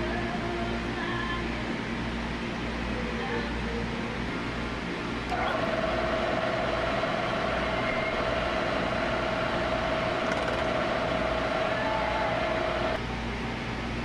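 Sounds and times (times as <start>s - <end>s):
milling machine cutting metal: 5.3s - 13.0s.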